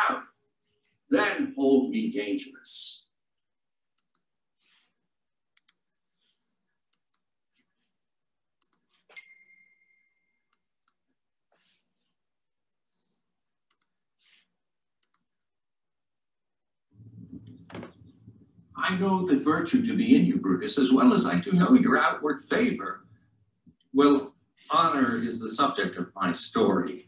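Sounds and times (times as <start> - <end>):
short ringing ding: 9.2 - 10.3.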